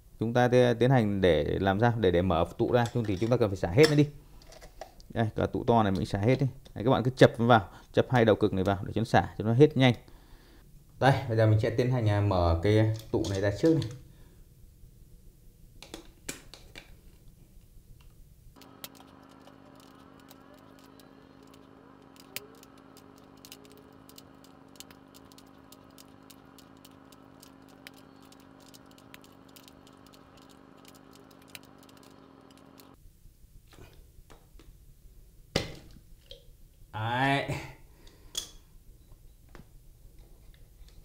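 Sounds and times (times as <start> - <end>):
steady hum: 17.1 - 36.9
cutters clicking and snipping metal: 18.6 - 33.0.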